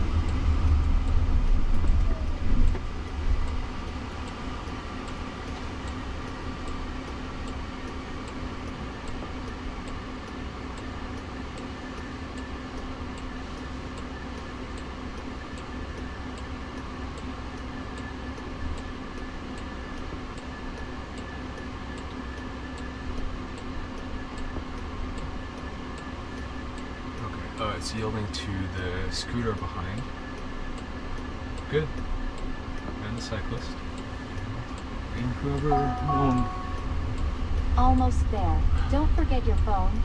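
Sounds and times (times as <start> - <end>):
car cabin hum: 0.0 - 16.4, 32.8 - 40.0
turn signal ticking: 0.0 - 40.0.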